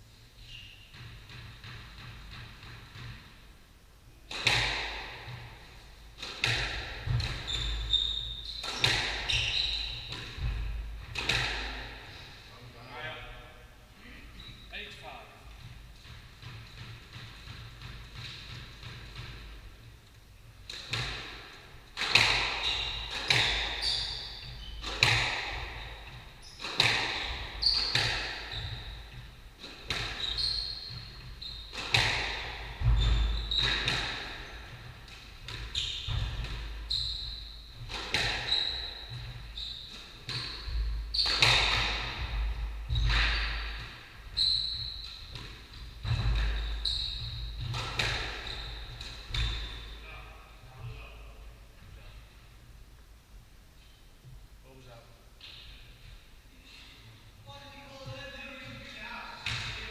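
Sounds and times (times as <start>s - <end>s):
squash ball hitting rackets and walls: 0.6s - 3.5s, 4.2s - 12.4s, 15.4s - 51.1s, 57.9s - 59.9s
shoes squeaking on wooden floor: 6.5s - 13.0s, 14.3s - 17.4s, 22.0s - 50.2s.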